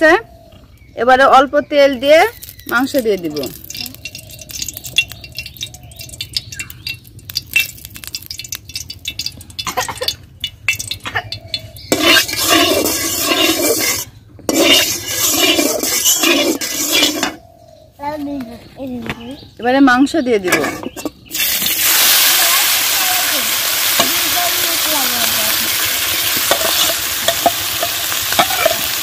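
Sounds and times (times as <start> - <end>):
light metal clinks: 2.4 - 11.9
rough metal clatter: 2.4 - 17.4.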